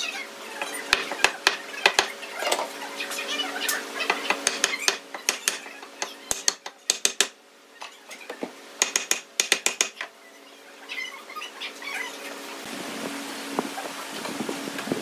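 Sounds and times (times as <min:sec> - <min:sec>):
wooden wheel clicking: 0:04.3 - 0:05.6, 0:06.3 - 0:07.3, 0:08.8 - 0:10.0.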